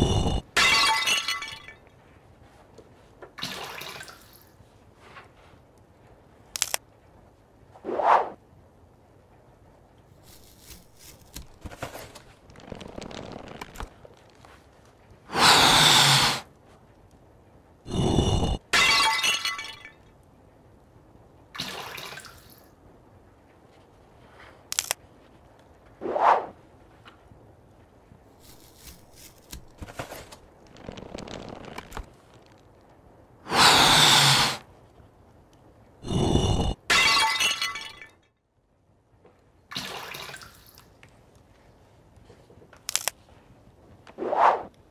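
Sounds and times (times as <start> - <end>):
cardboard crackling and rustling: 10.2 - 15.0, 28.4 - 32.9
balloon inflating rush of air: 15.3 - 16.4, 33.5 - 34.6.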